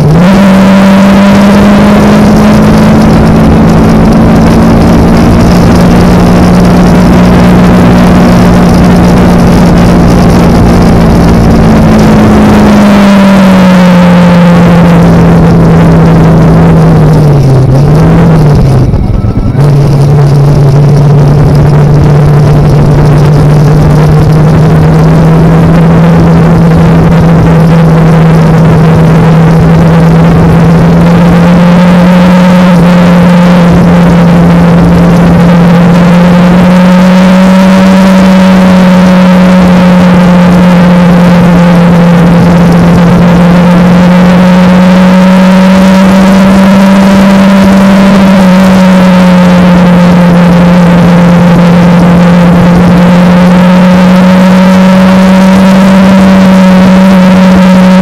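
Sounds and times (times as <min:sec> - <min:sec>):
heavy wind noise: 0:00.0 - 0:14.0, 0:14.7 - 0:32.6
motorcycle engine cruising: 0:00.0 - 0:58.0.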